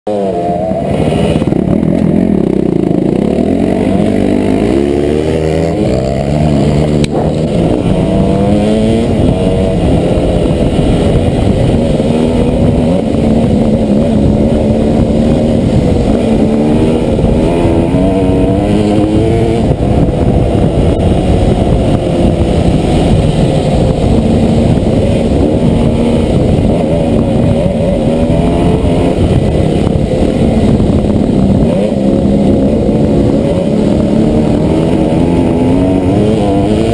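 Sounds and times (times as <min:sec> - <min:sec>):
dirt bike engine revving: 0:00.1 - 0:36.9.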